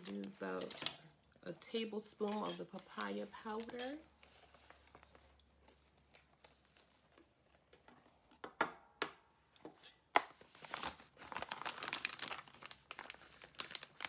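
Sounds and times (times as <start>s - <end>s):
plastic bags crinkling: 10.3s - 14.0s.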